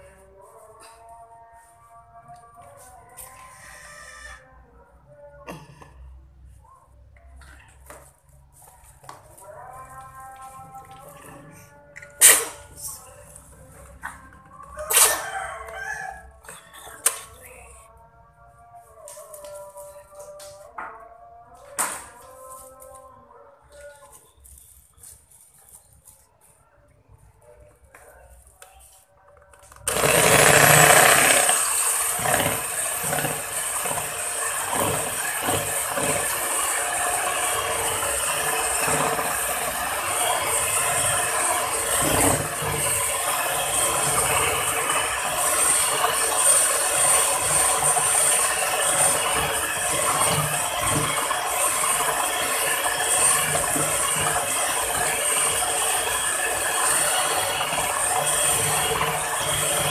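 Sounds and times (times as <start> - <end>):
electric hand mixer running: 29.8 - 59.9.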